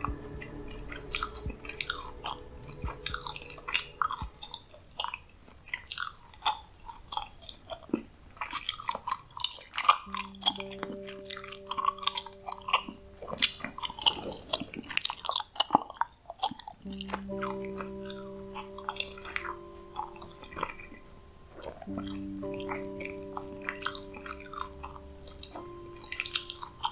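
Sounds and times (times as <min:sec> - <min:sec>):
soft background music chord: 0:00.0 - 0:06.0, 0:10.0 - 0:15.2, 0:16.8 - 0:26.9
gum chewing clicks and smacks: 0:05.8 - 0:10.1, 0:13.9 - 0:17.6.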